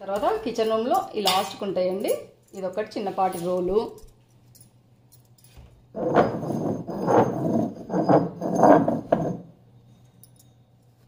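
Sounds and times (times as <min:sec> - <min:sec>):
stone pestle grinding in mortar: 0:06.0 - 0:09.5.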